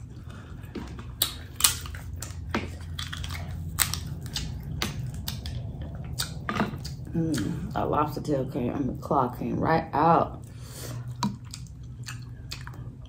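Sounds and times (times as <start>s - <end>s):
lobster shell cracking: 1.1s - 7.0s.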